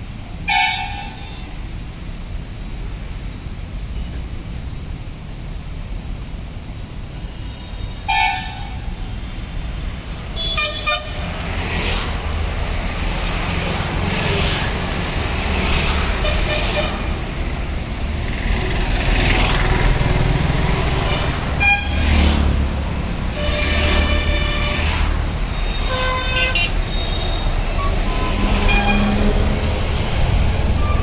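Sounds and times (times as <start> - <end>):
traffic engines rumbling: 0.0 - 31.0
car horn toots: 10.4 - 11.2, 25.6 - 29.2.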